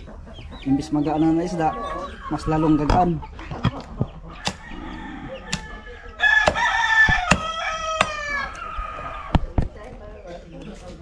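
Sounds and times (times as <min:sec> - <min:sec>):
rooster crowing: 0:04.5 - 0:09.4
knife chopping into fish: 0:06.4 - 0:08.2.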